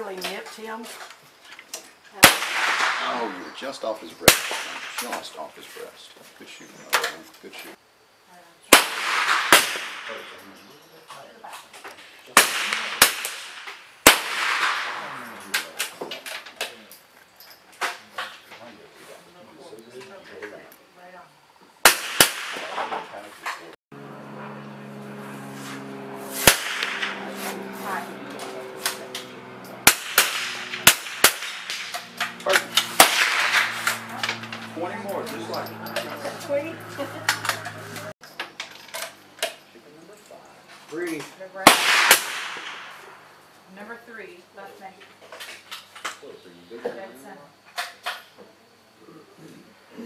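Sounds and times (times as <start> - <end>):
rifle shots echoing: 2.2 - 5.2, 8.7 - 10.4, 12.3 - 16.0, 21.8 - 23.2, 26.4 - 27.8, 28.4 - 34.8, 41.6 - 43.3.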